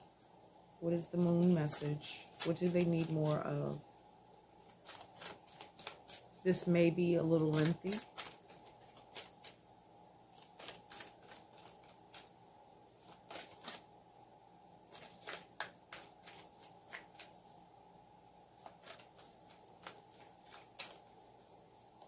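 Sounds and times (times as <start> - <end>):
cards being shuffled: 1.2 - 3.8, 4.6 - 6.5, 7.3 - 9.6, 10.3 - 12.3, 13.0 - 13.8, 14.9 - 17.4, 18.6 - 21.1.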